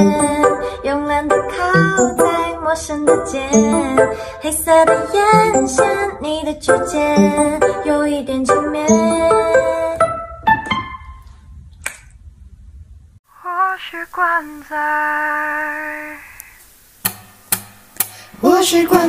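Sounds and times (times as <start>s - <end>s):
woman singing: 0.0s - 10.1s
piano chord: 0.0s - 11.3s.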